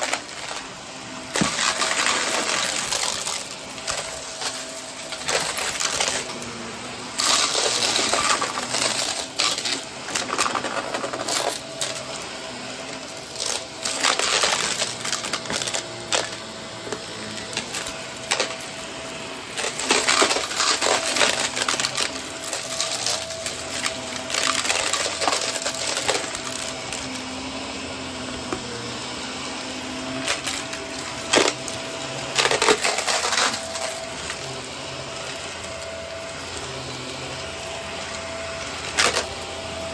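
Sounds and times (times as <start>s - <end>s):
debris crackling in vacuum: 0.0s - 6.5s, 7.1s - 12.2s, 13.1s - 18.6s, 19.5s - 27.1s, 32.3s - 34.4s
vacuum cleaner running: 0.0s - 39.9s.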